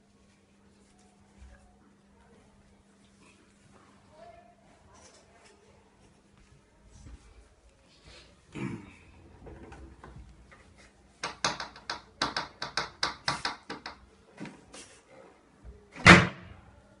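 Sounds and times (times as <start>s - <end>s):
wooden clicks and knocks: 11.2s - 14.1s.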